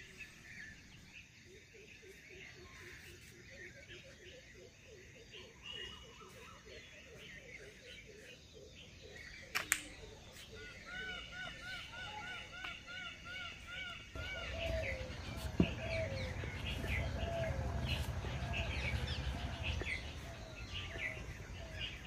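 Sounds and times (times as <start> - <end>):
birds chirping: 0.0 - 22.0
sharp click: 9.5 - 10.0.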